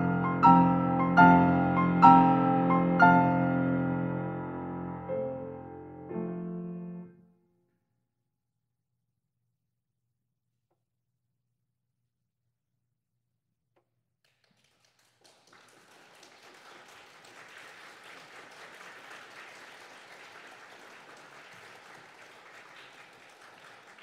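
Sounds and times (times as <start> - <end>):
audience applauding: 14.3 - 24.0.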